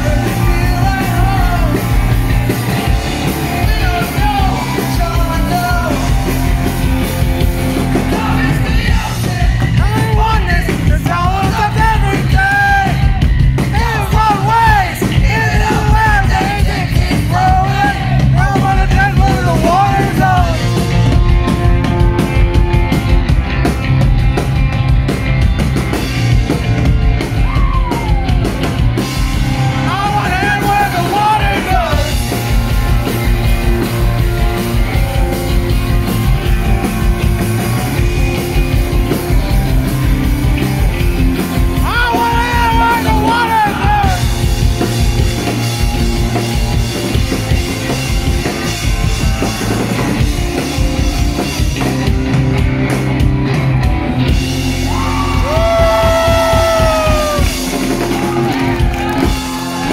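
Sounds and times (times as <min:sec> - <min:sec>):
live rock band playing: 0:00.0 - 0:59.9
shouted singing: 0:07.9 - 0:20.6, 0:54.8 - 0:59.9.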